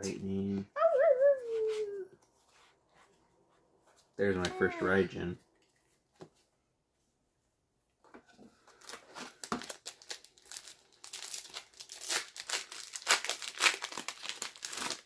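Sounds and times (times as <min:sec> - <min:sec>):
wrapper crinkling and tearing: 0:08.7 - 0:15.0.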